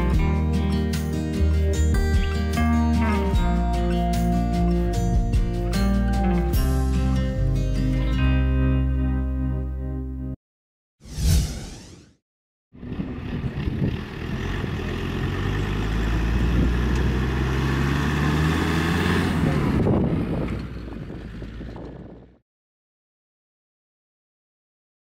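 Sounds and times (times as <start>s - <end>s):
wind noise on microphone: 12.8s - 14.8s, 16.4s - 16.9s, 19.4s - 22.4s
truck engine driving past: 12.8s - 21.9s.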